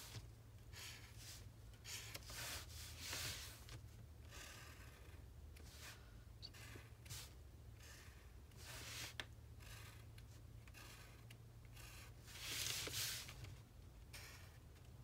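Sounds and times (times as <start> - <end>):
marker drawing on paper: 0.0 - 3.7, 4.3 - 10.0, 10.6 - 13.4
paper sliding across table: 0.8 - 3.7, 8.6 - 9.2, 12.3 - 13.4.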